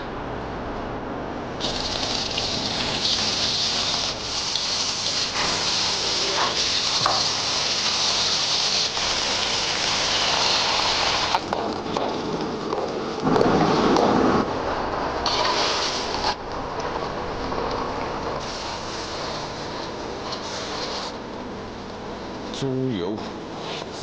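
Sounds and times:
food sizzling in a wok: 1.6s - 11.4s.

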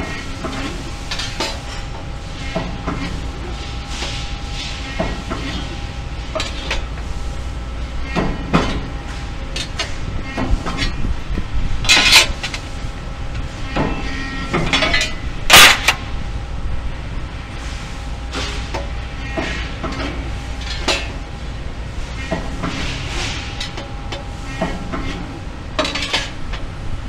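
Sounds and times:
machine hum: 0.0s - 27.0s
loud metallic clatters: 13.7s - 16.0s
sheet metal clinking and scraping: 25.0s - 26.4s.

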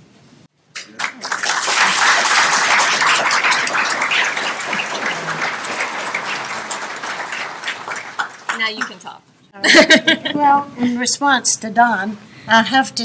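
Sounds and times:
audience applauding: 0.8s - 9.1s.

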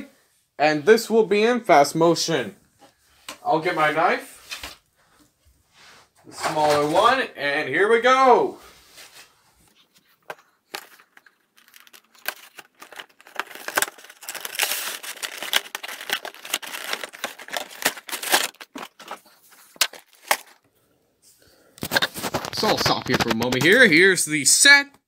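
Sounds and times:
cardboard and plastic crinkling: 9.7s - 20.6s.

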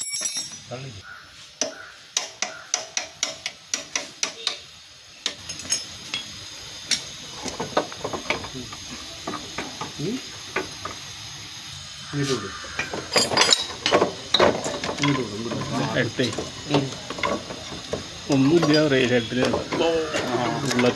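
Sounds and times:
tools clinking on metal parts: 0.0s - 0.8s, 5.2s - 9.9s, 12.8s - 20.9s.

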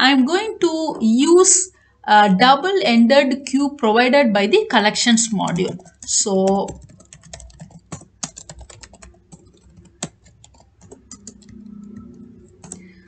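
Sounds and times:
keyboard keys clicking: 5.3s - 13.0s.

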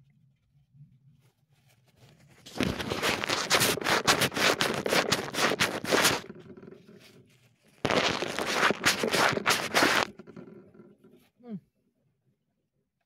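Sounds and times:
phone microphone being rubbed: 1.6s - 10.8s.

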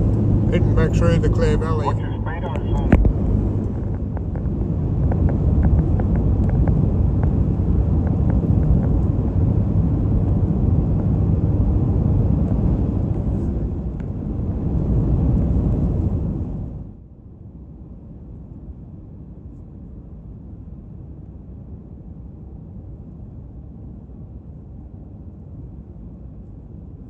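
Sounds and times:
car cabin road rumble: 0.0s - 16.9s.

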